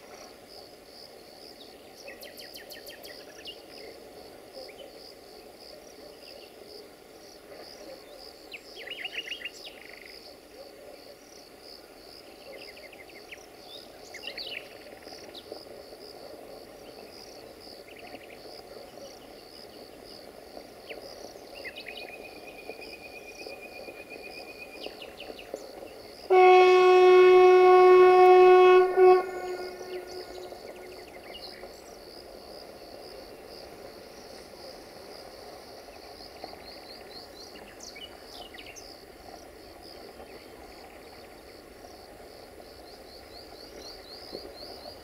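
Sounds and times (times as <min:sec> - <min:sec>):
insects chirping: 0:11.2 - 0:45.0
bird calling: 0:26.3 - 0:31.1
locomotive horn: 0:26.3 - 0:31.2.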